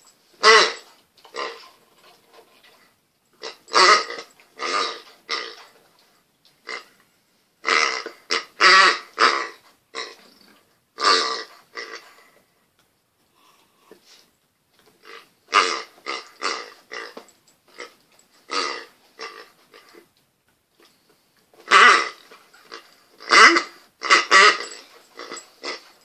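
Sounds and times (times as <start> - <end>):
rubber toy honking: 0.4 - 1.7, 3.4 - 5.6, 7.7 - 10.2, 11.0 - 12.1, 15.1 - 17.2, 18.5 - 20.0, 21.6 - 25.9.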